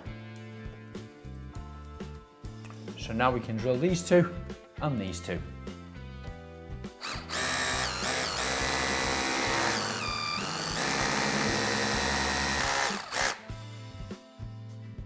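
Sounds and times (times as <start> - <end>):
hammer drill boring into wall: 7.0 - 13.4.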